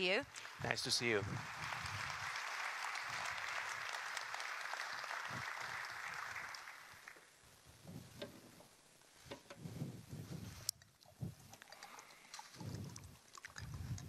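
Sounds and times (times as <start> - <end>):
audience applause: 0.3 - 7.3.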